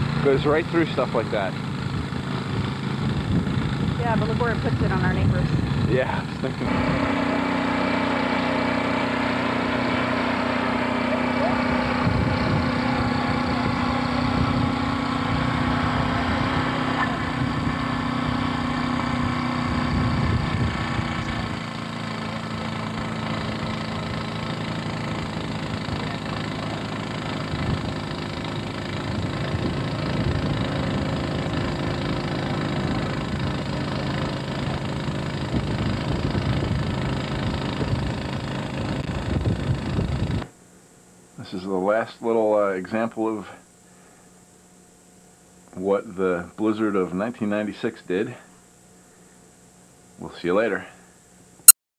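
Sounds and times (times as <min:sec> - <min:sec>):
snowblower engine running: 0:00.0 - 0:40.6, 0:43.8 - 0:44.4.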